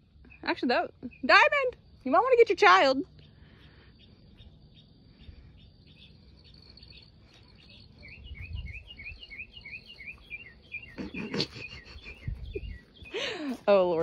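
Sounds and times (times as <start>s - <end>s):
crickets trilling: 0.0s - 14.0s
rapid repeated chirps: 3.1s - 13.6s.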